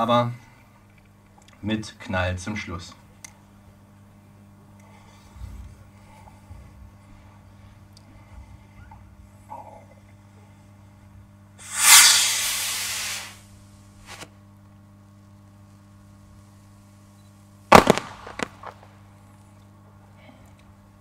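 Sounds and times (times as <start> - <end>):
firework bang: 11.6 - 13.3, 17.7 - 18.9
firework cracks: 11.6 - 13.4, 17.7 - 19.0
firework rocket whoosh: 11.6 - 13.4.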